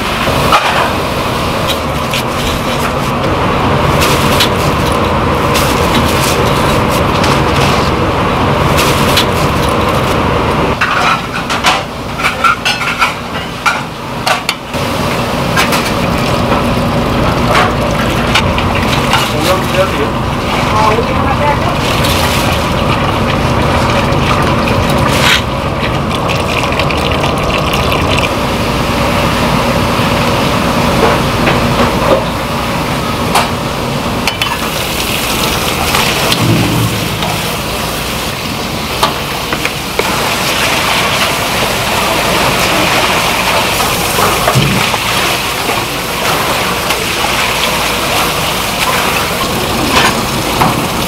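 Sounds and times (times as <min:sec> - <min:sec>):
pot of water boiling: 0:00.0 - 0:51.0
water pouring: 0:21.7 - 0:28.4.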